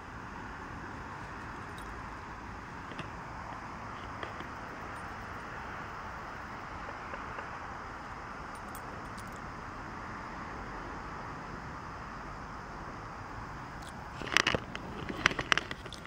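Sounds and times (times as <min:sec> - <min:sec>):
distant road traffic rush: 0:00.0 - 0:16.0.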